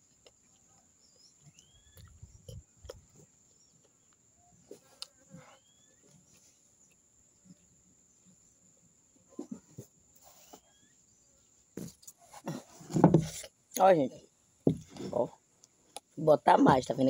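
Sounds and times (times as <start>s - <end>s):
person chewing and eating: 0.0s - 4.2s
bird chirps: 1.0s - 2.6s, 5.5s - 6.4s, 10.5s - 11.3s.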